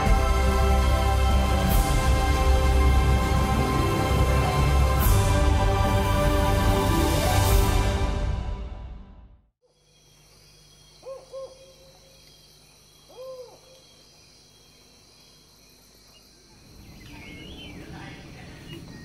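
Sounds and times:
insect-like ambience: 0:09.6 - 0:19.0
bird hooting: 0:10.8 - 0:12.3, 0:13.0 - 0:14.0.

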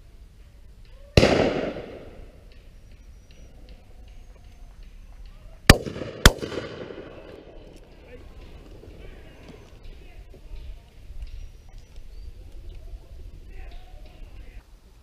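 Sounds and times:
shotgun shots with echo: 0:01.2 - 0:02.4, 0:05.7 - 0:07.6.

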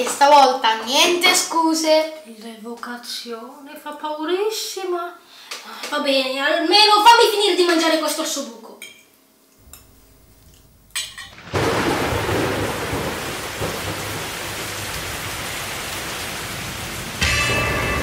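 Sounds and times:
heavy rain: 0:11.1 - 0:18.0.

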